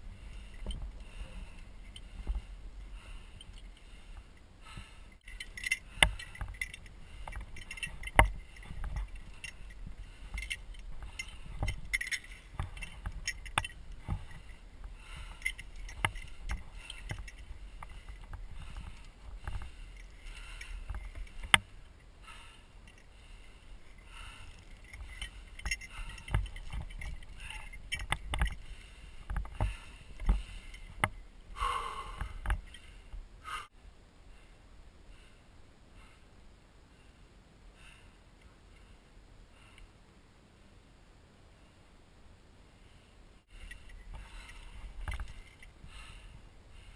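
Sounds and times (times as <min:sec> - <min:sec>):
climber moving over rock: 0:00.0 - 0:33.7, 0:43.5 - 0:46.9.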